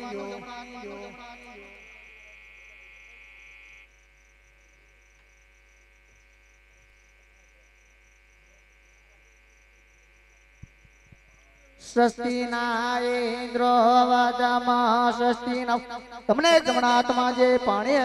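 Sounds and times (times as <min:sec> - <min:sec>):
pulsing high buzz: 0:00.0 - 0:11.4
electrical hum and buzz: 0:00.0 - 0:13.6.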